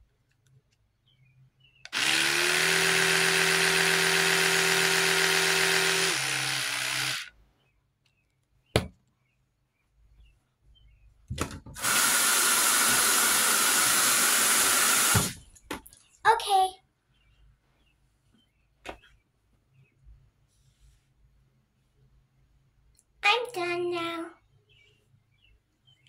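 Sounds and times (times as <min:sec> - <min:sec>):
electric toothbrush buzzing: 0:01.9 - 0:07.3
tap running with hiss: 0:14.2 - 0:15.4.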